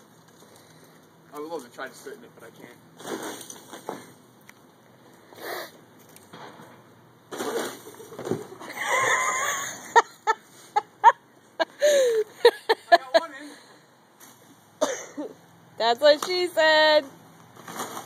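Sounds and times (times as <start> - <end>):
person crashing onto box spring: 7.3 - 8.7.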